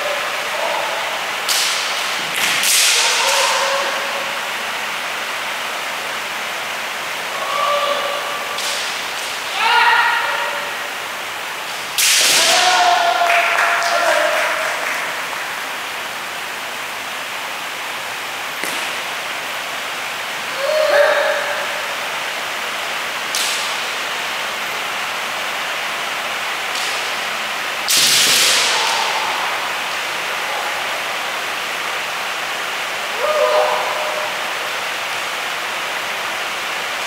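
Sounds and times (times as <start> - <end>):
people shouting: 0.0 - 1.4, 2.7 - 4.4, 7.3 - 8.6, 9.5 - 10.9, 12.0 - 15.2, 20.5 - 21.9, 28.3 - 31.1, 33.1 - 34.4
steady background hiss: 0.0 - 37.0.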